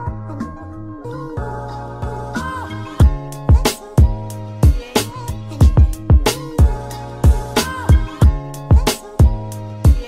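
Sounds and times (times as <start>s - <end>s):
steady bass line: 0.0s - 10.0s
deep kick drum hits: 5.6s - 7.4s.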